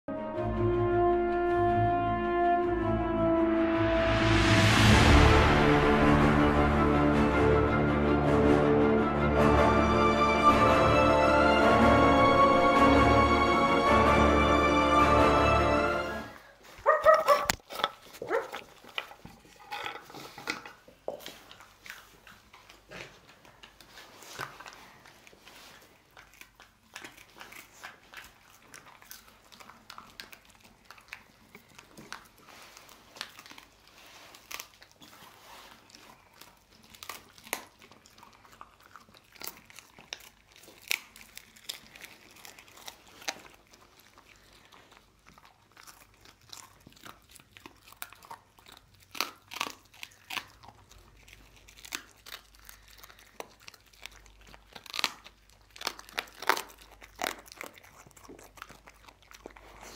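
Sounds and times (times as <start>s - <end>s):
dog crunching bone: 16.8s - 59.9s.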